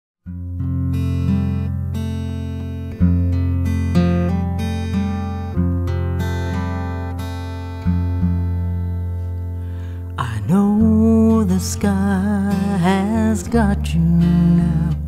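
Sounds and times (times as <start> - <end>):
acoustic guitar chords: 0.2 - 15.0.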